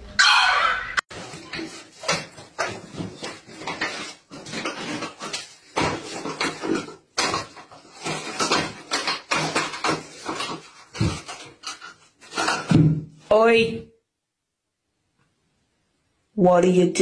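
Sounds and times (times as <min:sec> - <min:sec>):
toilet paper roll rattling: 0:01.1 - 0:13.0.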